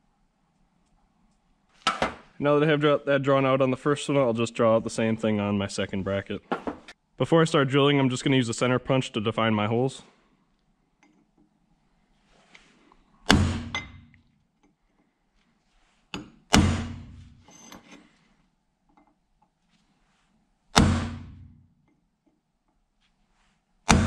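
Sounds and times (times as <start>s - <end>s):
hammer striking punch on steel: 13.3s - 14.1s, 16.2s - 17.4s, 20.8s - 21.6s.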